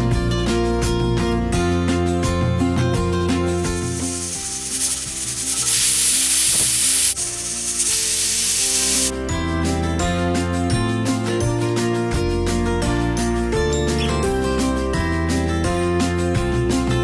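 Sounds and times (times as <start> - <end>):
pressure cooker steam hissing: 3.7 - 9.1
guitar music: 12.0 - 16.0.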